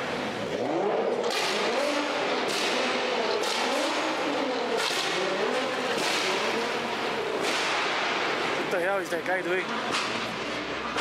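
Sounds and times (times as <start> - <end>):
supercar engine revving: 0.0 - 8.7.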